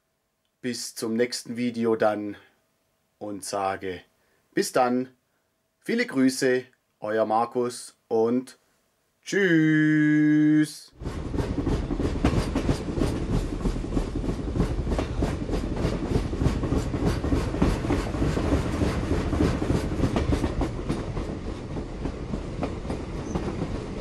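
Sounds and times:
train wheels clickety-clack: 0:11.0 - 0:24.0.

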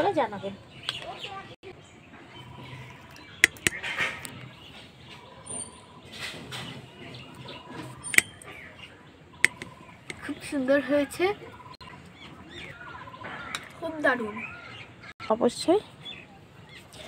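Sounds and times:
birds chirping: 0:00.0 - 0:17.0
spoon scraping plastic plate: 0:03.4 - 0:04.3.

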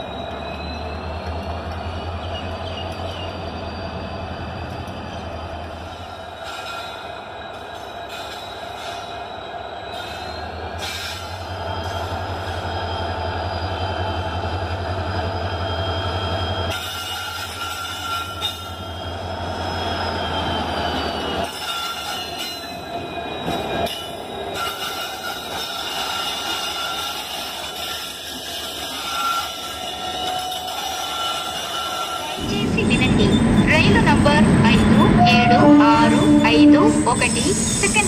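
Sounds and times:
locomotive engines droning: 0:00.0 - 0:38.0
high whining tones: 0:32.4 - 0:38.0.

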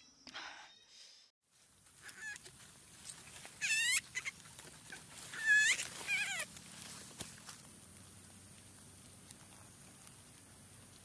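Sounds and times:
high-pitched animal calls: 0:02.0 - 0:02.5, 0:03.6 - 0:06.5.

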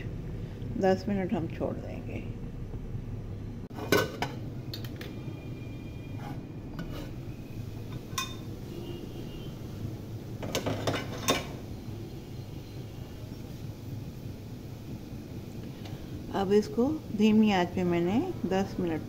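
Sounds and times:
metal pot lid clinking: 0:03.8 - 0:04.4, 0:07.9 - 0:08.5.

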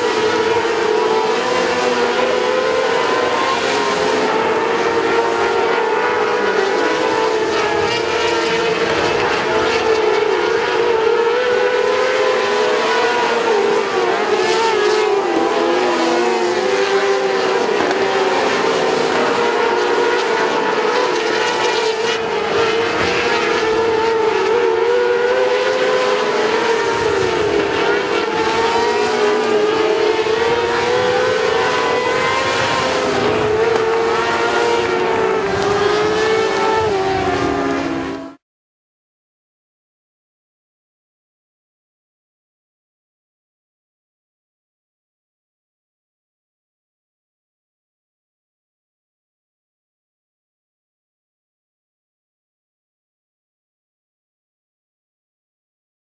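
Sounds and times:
racing car engines droning: 0:00.0 - 0:38.4.

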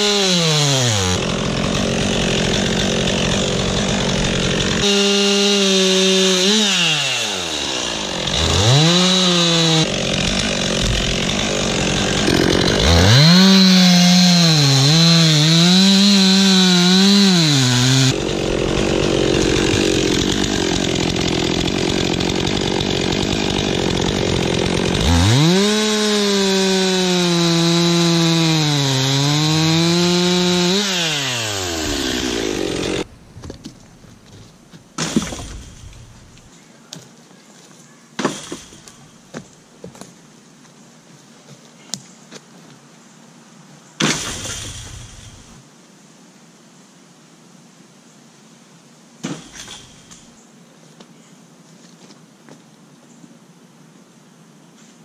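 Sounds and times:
chainsaw cutting log: 0:00.0 - 0:34.0, 0:35.0 - 0:36.5, 0:38.2 - 0:39.0, 0:44.0 - 0:45.6, 0:49.2 - 0:50.3.

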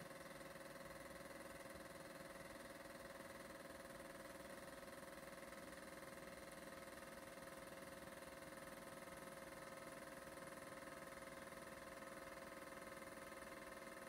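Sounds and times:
film projector whirring: 0:00.0 - 0:14.0.

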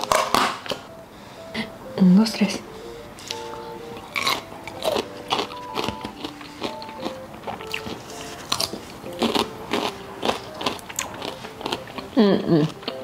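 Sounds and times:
soft background music: 0:00.0 - 0:13.0
crunchy chewing: 0:03.2 - 0:13.0.

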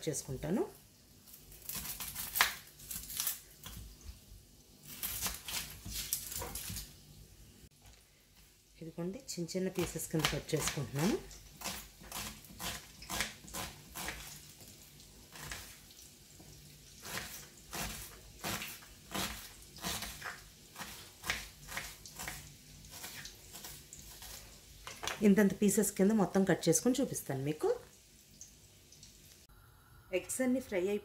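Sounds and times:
knife chopping on wooden board: 0:17.0 - 0:24.4.

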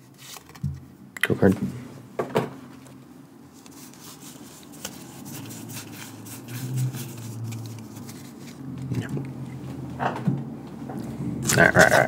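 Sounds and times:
trading cards clicking and rustling: 0:00.1 - 0:01.6, 0:03.6 - 0:09.3.

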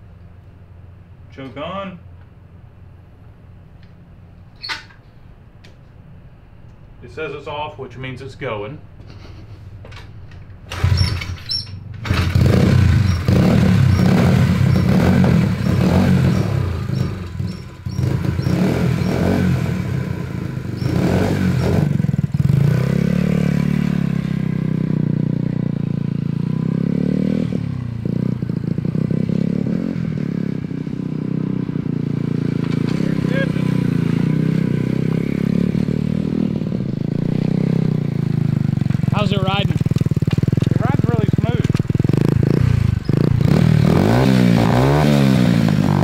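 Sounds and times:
mini bike engine revving: 0:10.7 - 0:46.0
mini bike riding away: 0:10.7 - 0:46.0.

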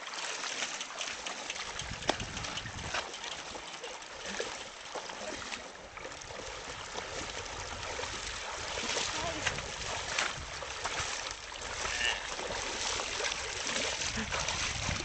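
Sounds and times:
feet and wheels splashing water: 0:00.0 - 0:15.0.

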